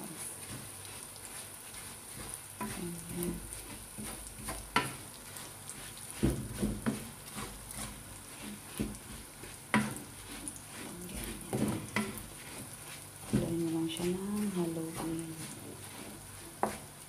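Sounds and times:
hot oil sizzling: 0.0 - 17.0
spatula scraping frying pan: 0.0 - 17.0
spatula knocking against pan: 6.2 - 7.1, 11.5 - 12.2.

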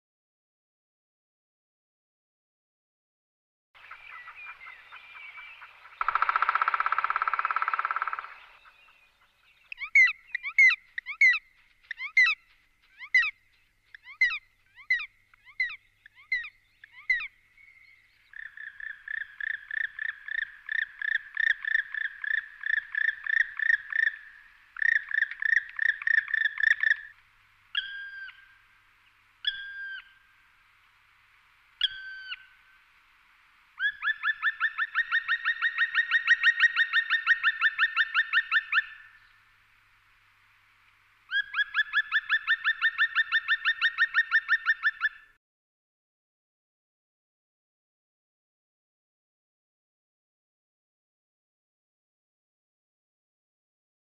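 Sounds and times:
woodpecker calling: 3.8 - 30.4, 31.8 - 32.8, 33.8 - 39.4, 41.3 - 45.4.

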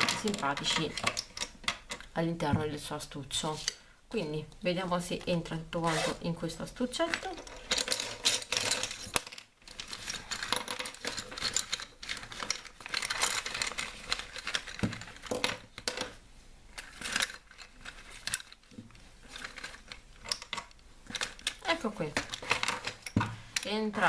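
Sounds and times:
pencils clattering together: 0.0 - 2.2, 6.7 - 24.0
pencil case rustling: 7.0 - 23.6.

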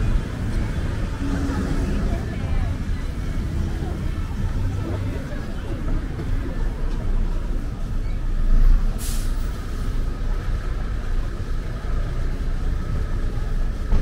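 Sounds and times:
traffic rumble: 0.0 - 14.0
brief sharp hiss: 9.0 - 9.4.

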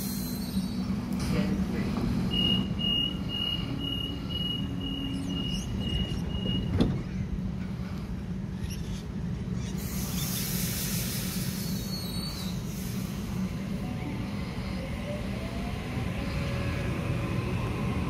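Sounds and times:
standing train humming: 0.0 - 18.0
train doors shutting with a thud: 1.2 - 7.8
train door warning beeps: 2.0 - 7.0.

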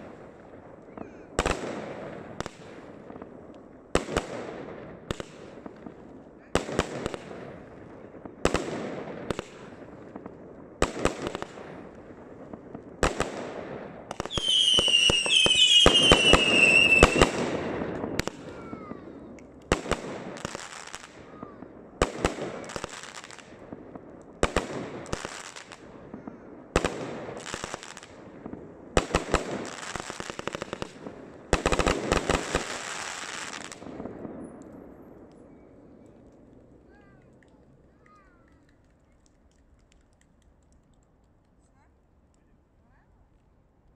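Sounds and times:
firework crackling: 0.0 - 41.0
fireworks banging: 1.0 - 35.7
firework whistles sliding downward: 14.3 - 17.3.

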